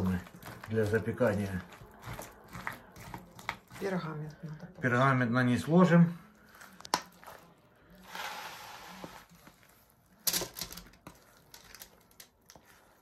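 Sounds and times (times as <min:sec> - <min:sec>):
sticky corn sticks crackling: 0:00.0 - 0:04.5, 0:06.4 - 0:13.0
spatula scraping: 0:00.0 - 0:13.0.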